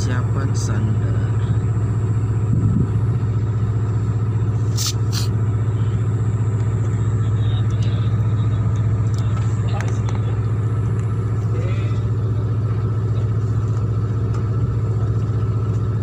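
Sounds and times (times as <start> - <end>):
diesel engine droning: 0.0 - 16.0
short hisses: 4.6 - 5.4.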